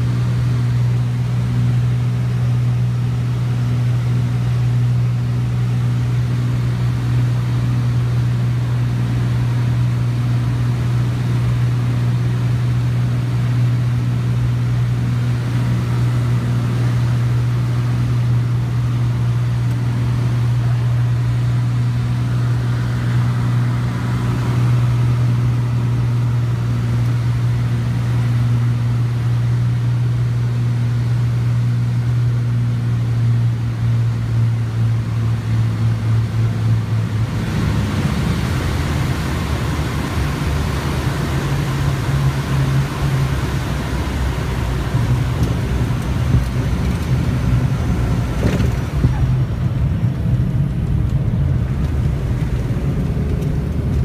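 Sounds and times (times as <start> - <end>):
aircraft engine drone: 0.0 - 54.0
rushing air noise: 37.1 - 42.0.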